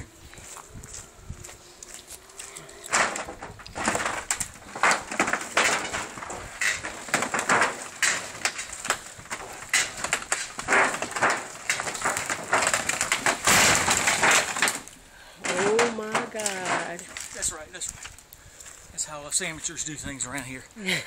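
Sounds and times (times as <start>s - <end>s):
timber frame creaking and snapping: 1.8s - 18.3s
wooden structure crashing down: 2.8s - 17.6s.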